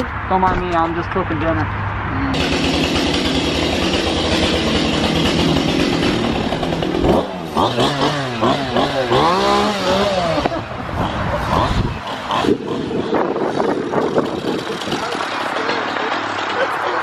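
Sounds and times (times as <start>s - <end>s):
chainsaw running and revving: 2.3s - 17.0s.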